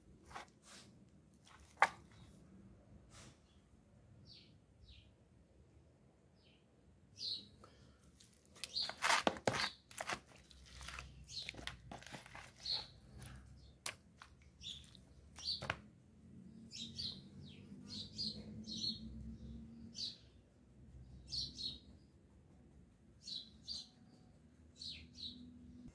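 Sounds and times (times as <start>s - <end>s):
handling raw chicken in plastic bowl: 0.2s - 2.3s, 8.2s - 15.8s
small birds chirping: 6.3s - 22.4s, 23.0s - 25.9s.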